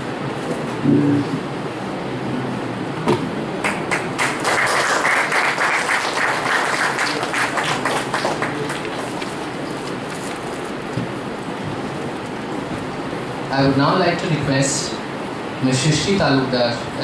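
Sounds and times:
people applauding: 0:03.6 - 0:09.9.

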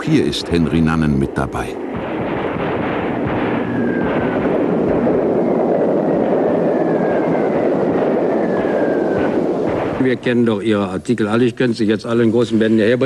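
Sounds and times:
falling high whistles: 0:03.5 - 0:04.4, 0:05.3 - 0:09.6.

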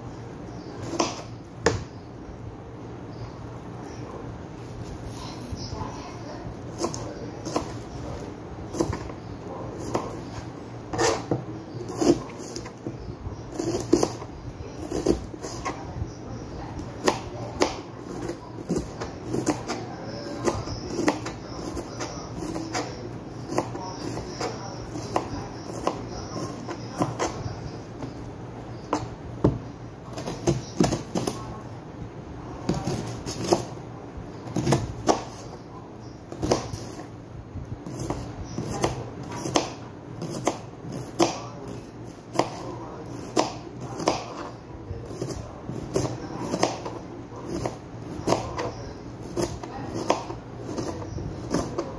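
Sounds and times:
knife chopping on cutting board: 0:00.8 - 0:01.9, 0:06.8 - 0:07.9, 0:08.7 - 0:09.1, 0:09.8 - 0:12.9, 0:13.5 - 0:15.8, 0:17.0 - 0:27.4, 0:28.9 - 0:31.4, 0:32.7 - 0:33.8, 0:34.4 - 0:35.6, 0:36.3 - 0:37.0, 0:37.8 - 0:51.9.

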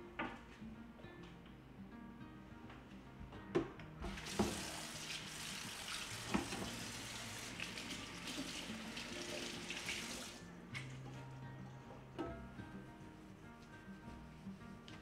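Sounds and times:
faucet running into sink: 0:04.0 - 0:11.0.

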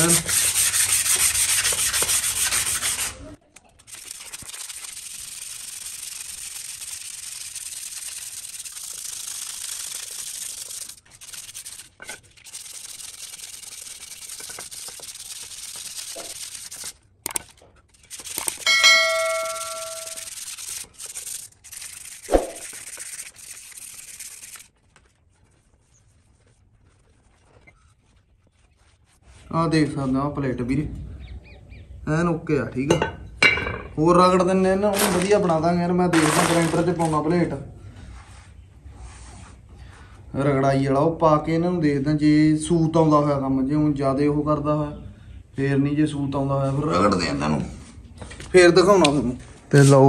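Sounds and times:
metal ringing: 0:18.6 - 0:20.2.

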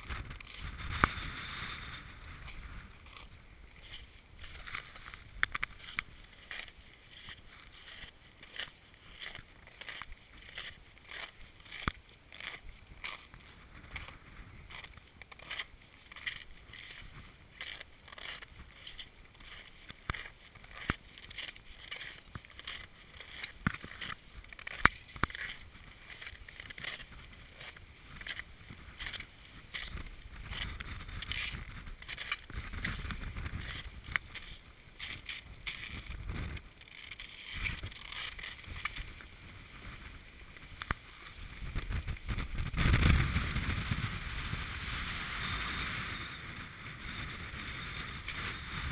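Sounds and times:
crampons crunching on snow: 0:00.0 - 0:39.3
wind buffeting microphone: 0:41.4 - 0:48.9.

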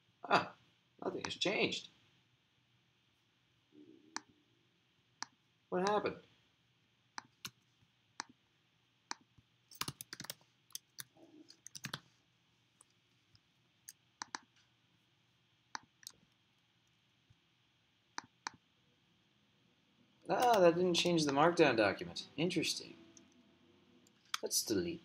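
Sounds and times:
mouse and keyboard clicks: 0:09.1 - 0:12.0, 0:13.9 - 0:14.5, 0:20.4 - 0:21.4.

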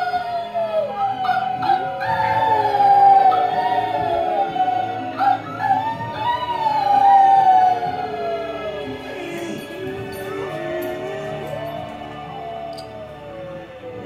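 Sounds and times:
film soundtrack music: 0:00.0 - 0:14.0
puppy howling: 0:00.0 - 0:14.0.

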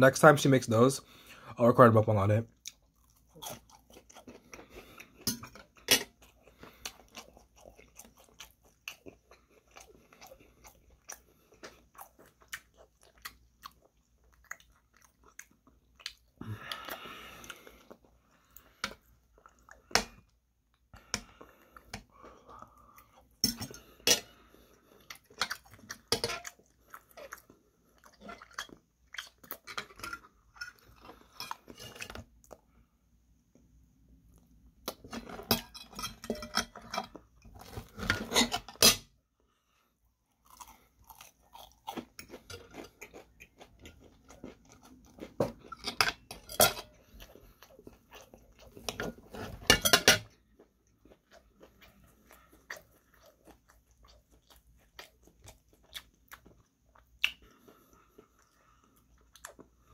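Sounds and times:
chewing crunchy fried food: 0:02.5 - 0:32.9, 0:40.1 - 0:59.9.

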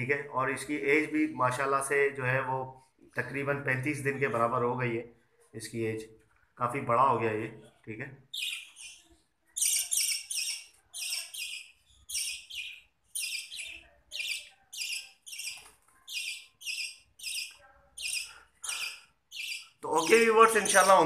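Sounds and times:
budgerigar chick chirping: 0:08.4 - 0:21.0.

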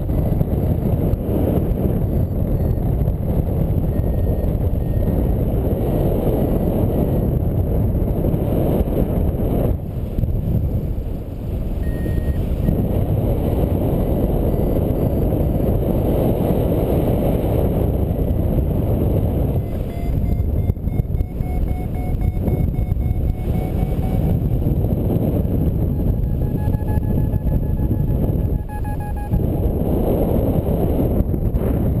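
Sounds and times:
wind buffeting microphone: 0:00.0 - 0:32.0
faint short beeps: 0:03.8 - 0:05.2, 0:11.8 - 0:12.8, 0:19.4 - 0:24.8, 0:25.4 - 0:29.5.

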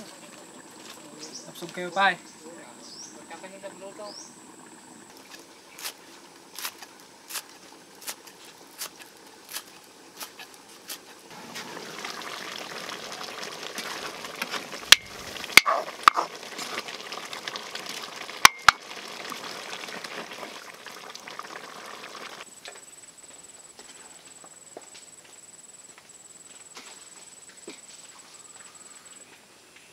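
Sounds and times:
broth simmering in a wok: 0:00.0 - 0:29.3
wooden ladle knocking on wok: 0:18.5 - 0:18.8.

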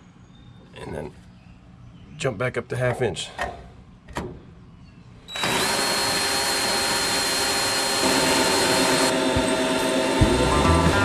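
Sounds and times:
electric drill whining: 0:05.3 - 0:11.0.

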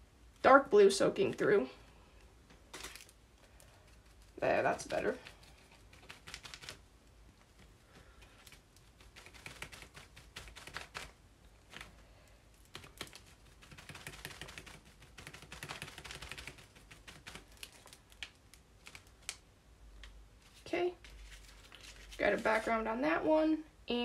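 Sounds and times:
sponge dabbing paint: 0:03.7 - 0:18.2.

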